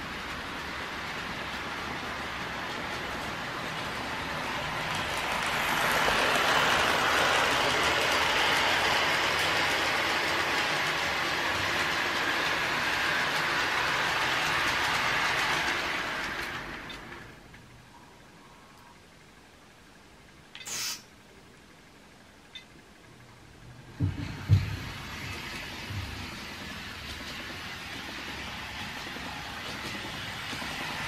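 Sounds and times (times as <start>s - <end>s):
model train running on track: 0.0s - 17.6s, 24.0s - 31.0s.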